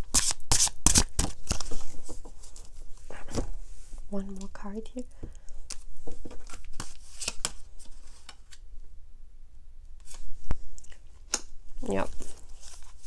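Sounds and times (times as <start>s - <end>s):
cards being shuffled: 0.1s - 2.7s, 5.7s - 8.6s.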